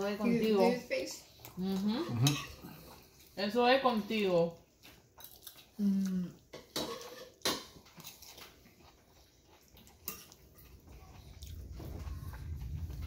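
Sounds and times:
cutlery scraping ceramic plate: 2.0 - 2.6, 6.5 - 7.9, 10.0 - 10.4.

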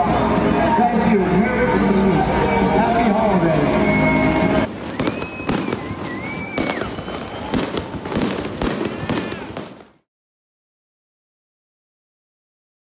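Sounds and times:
music: 0.0 - 4.7
firework whistling: 3.6 - 9.9
fireworks bangs: 4.1 - 10.1.

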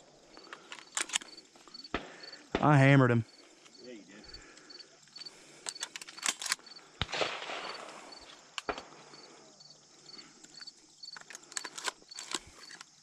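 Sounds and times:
faint high insect chirp: 0.0 - 13.0
sharp clicks and rustles: 0.4 - 1.4, 5.2 - 6.6, 10.4 - 13.0
shotgun shot: 7.0 - 9.0.

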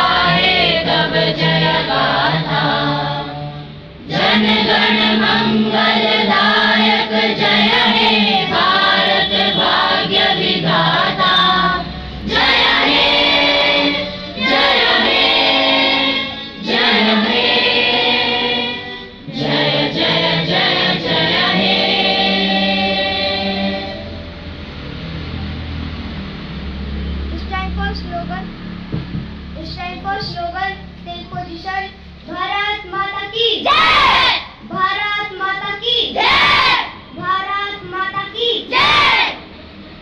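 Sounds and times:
children singing: 0.0 - 24.2, 33.6 - 39.4.

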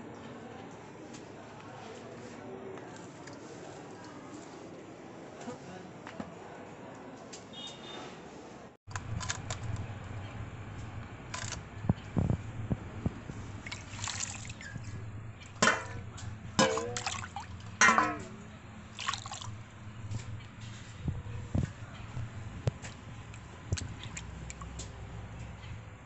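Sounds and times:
water splashing and trickling: 13.1 - 20.4, 22.2 - 25.7.

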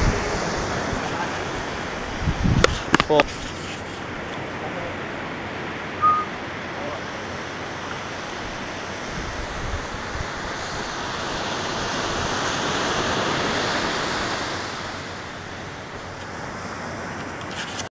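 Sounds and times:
wind buffeting microphone: 0.0 - 3.6, 8.4 - 14.4
surf washing onto a beach: 0.0 - 17.9.

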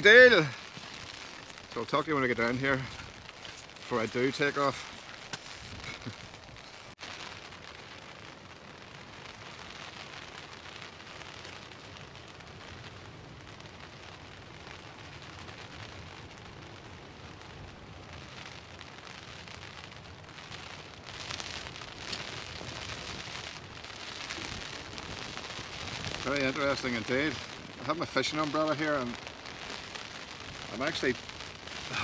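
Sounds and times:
strong wind buffeting microphone: 0.0 - 6.8, 22.0 - 32.0.

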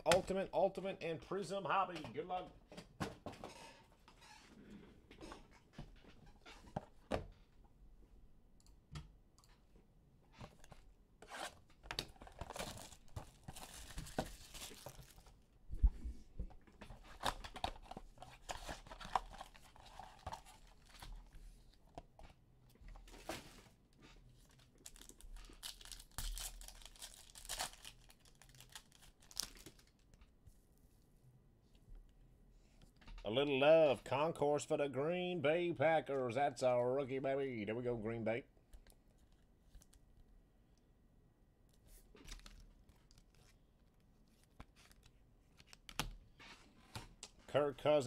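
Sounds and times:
foil packs tearing and crinkling: 12.4 - 15.3, 24.8 - 29.9.

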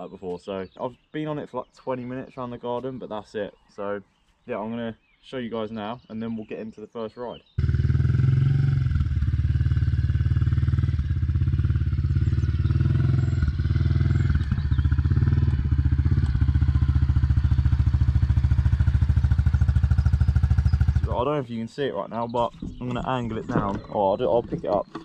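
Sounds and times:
motorbike engine running: 7.6 - 21.2.

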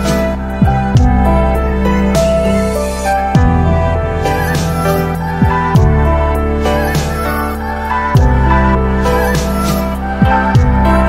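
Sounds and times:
downward bass sweep: 0.0 - 11.0
electronic music: 0.0 - 11.0.

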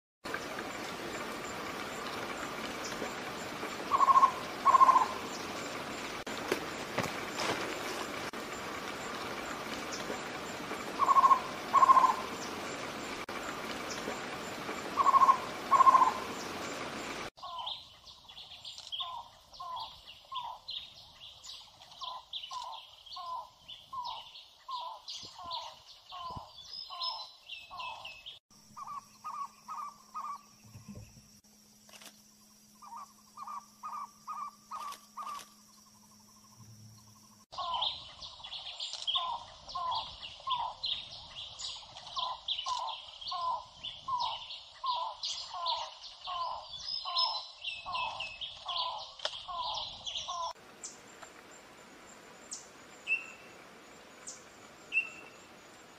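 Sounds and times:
higher bird chirps: 3.5 - 6.0, 9.9 - 13.3, 13.9 - 21.4, 52.5 - 55.6.

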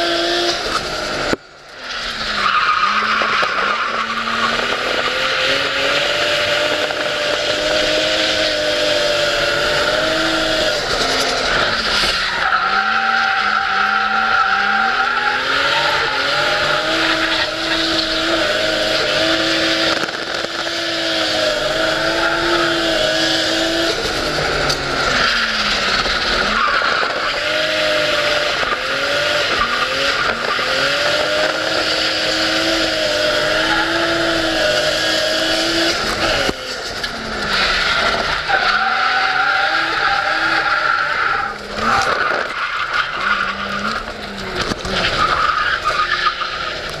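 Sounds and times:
car engine at high revs: 0.0 - 47.0
tyre squeal: 1.8 - 5.8, 7.0 - 20.4, 37.1 - 47.0.

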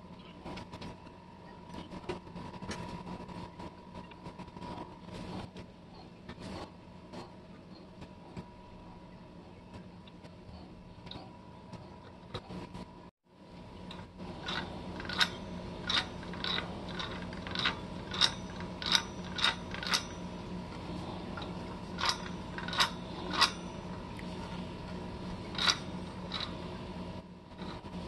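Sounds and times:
metallic clicks of hand-cranked roller: 13.9 - 26.6.

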